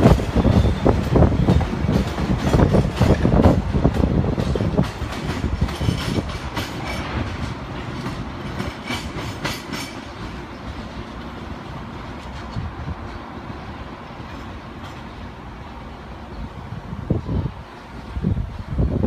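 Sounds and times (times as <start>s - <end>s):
wheels clicking over rail joints: 0.0s - 13.4s
train rumbling along track: 0.0s - 19.0s.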